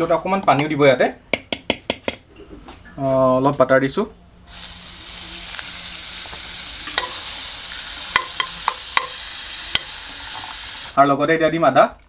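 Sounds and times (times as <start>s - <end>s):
butter sizzling: 4.5s - 11.0s.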